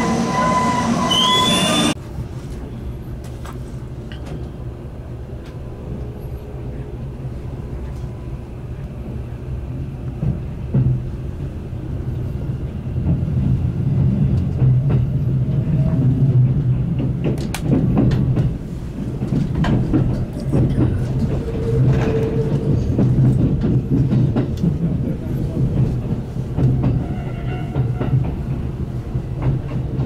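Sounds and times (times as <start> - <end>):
train running low hum: 0.0 - 30.0
wheels clacking over rail joints: 16.4 - 30.0.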